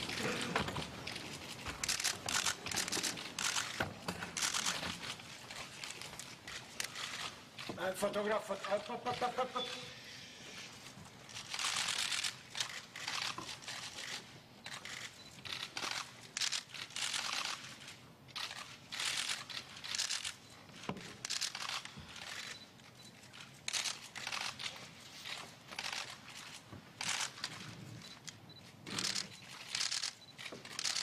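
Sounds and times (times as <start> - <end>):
camera shutters firing: 1.8 - 5.0, 11.4 - 17.6, 18.4 - 20.4, 21.1 - 22.6, 27.0 - 27.7, 28.9 - 31.0.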